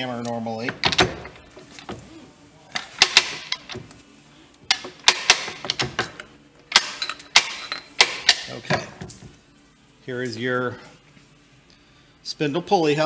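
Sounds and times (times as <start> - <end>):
parts shifting against steel blocks: 2.7 - 4.0.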